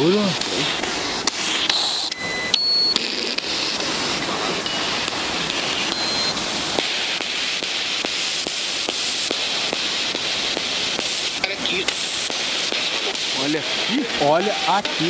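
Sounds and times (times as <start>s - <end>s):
waterfall rushing: 0.0s - 15.0s
short electronic beeps: 1.7s - 3.3s, 5.9s - 6.4s, 14.4s - 14.8s.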